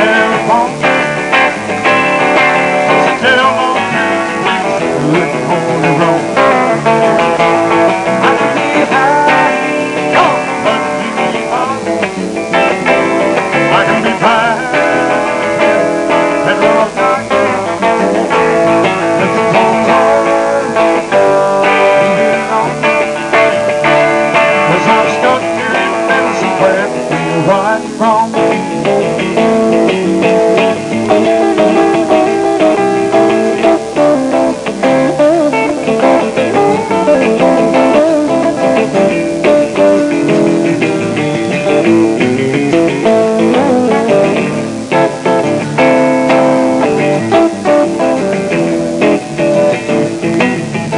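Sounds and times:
live band with guitars: 0.0s - 50.9s.

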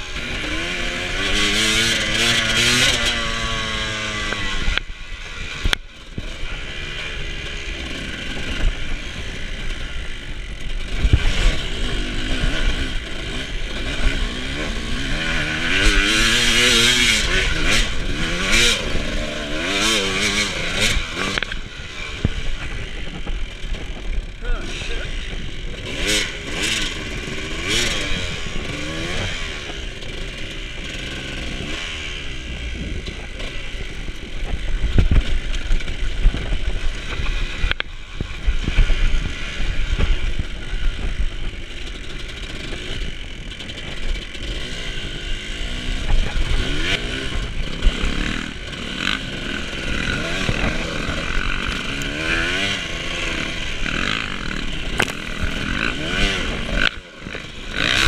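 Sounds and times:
dirt bike engine revving: 0.0s - 58.0s
sharp click: 55.0s - 55.6s.

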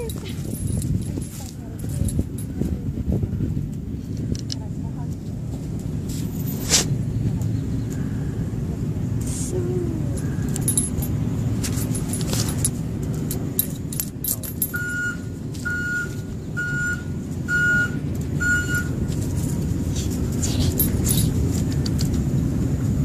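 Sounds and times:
metallic jingling: 0.0s - 2.8s, 10.4s - 15.4s, 18.8s - 21.9s
short electronic beeps: 14.8s - 19.0s.

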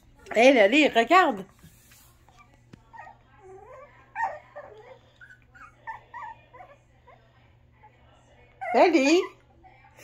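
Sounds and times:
puppy whimpering and yipping: 2.9s - 6.8s.

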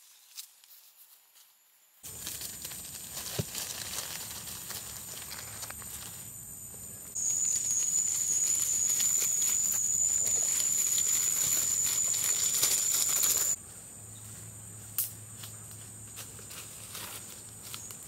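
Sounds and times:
high insect buzz: 4.8s - 13.6s.

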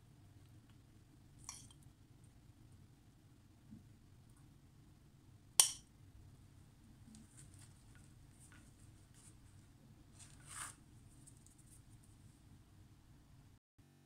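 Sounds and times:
bread scraping on plate: 10.1s - 10.8s.

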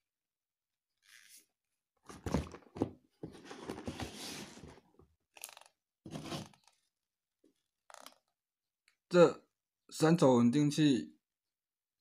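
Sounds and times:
rubbing and rustling: 2.2s - 4.8s.

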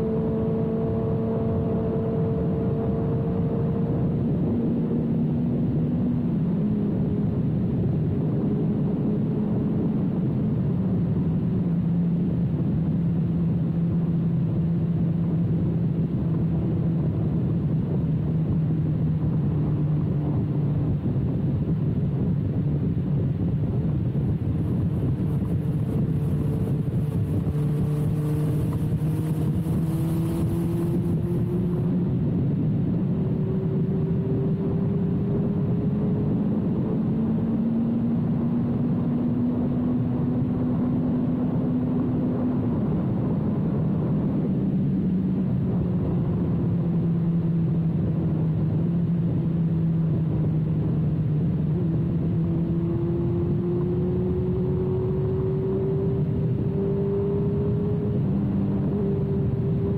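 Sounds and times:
motorcycle engine revving: 0.0s - 7.4s, 23.4s - 44.0s, 45.6s - 59.9s.

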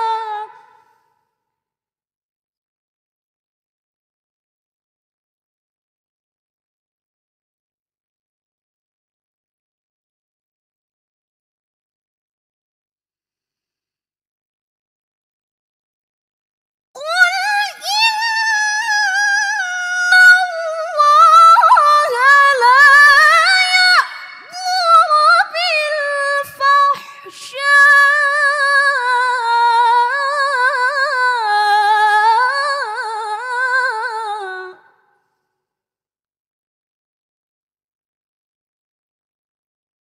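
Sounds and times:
woman reciting melodically: 0.0s - 0.8s, 17.0s - 34.8s.

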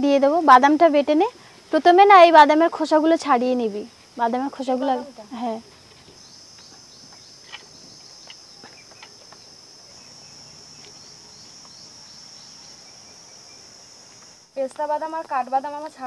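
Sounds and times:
insect chorus drone: 0.0s - 16.0s.

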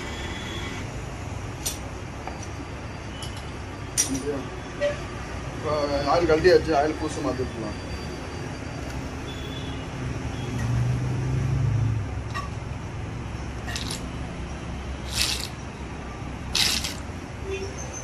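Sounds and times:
oil bottle squirting: 15.1s - 15.6s, 16.6s - 17.1s.

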